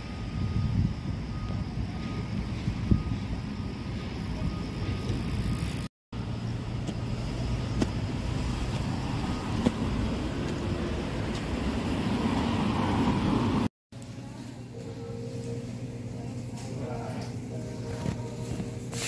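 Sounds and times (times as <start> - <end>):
road traffic rumble: 0.0 - 13.7.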